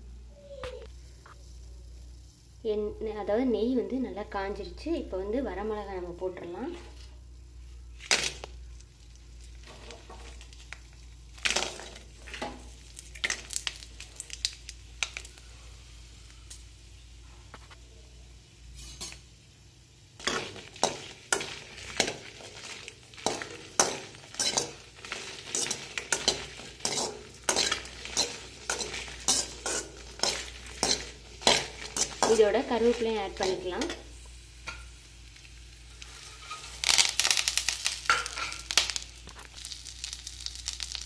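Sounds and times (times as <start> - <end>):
chillies dropping into a pan: 8.0 - 15.4, 20.2 - 41.0
spatula scraping a steel pan: 23.2 - 32.4.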